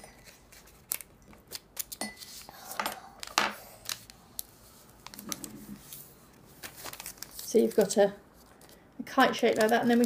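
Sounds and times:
paper crackling while folded: 3.2s - 10.0s.

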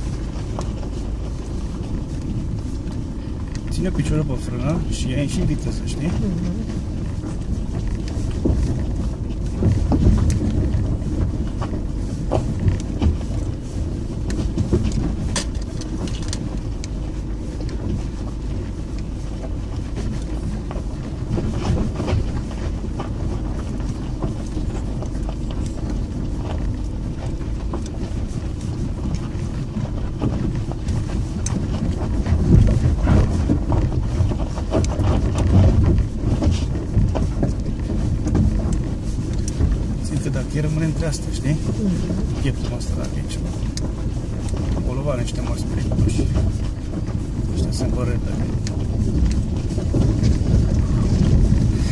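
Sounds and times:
car engine: 0.0s - 51.9s
tyres rumbling on loose gravel: 0.0s - 51.9s.

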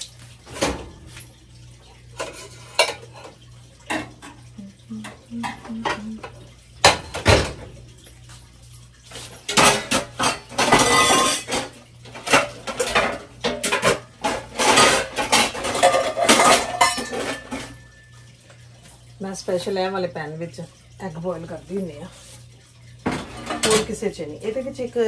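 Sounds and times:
pots and pans clanking: 2.1s - 4.4s, 5.4s - 7.8s, 9.2s - 18.1s, 23.0s - 24.1s.

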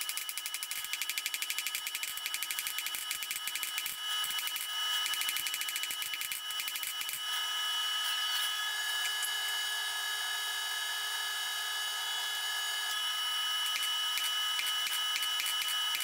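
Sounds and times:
held whine: 0.0s - 16.0s
forge fire and blower hissing: 6.1s - 16.0s.

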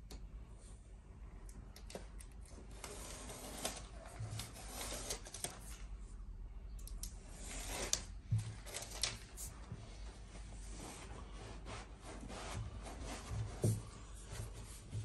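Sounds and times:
tape backing peeling: 7.4s - 9.5s.

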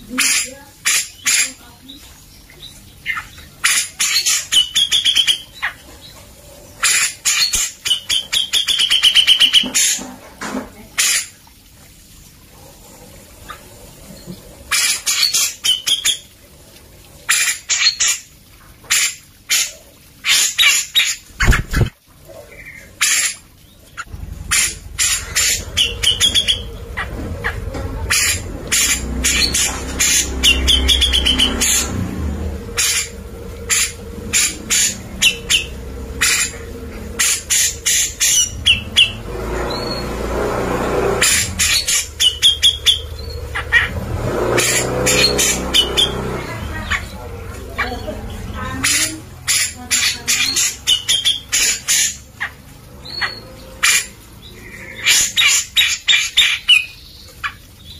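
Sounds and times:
bird wavering trills: 22.5s - 57.9s.

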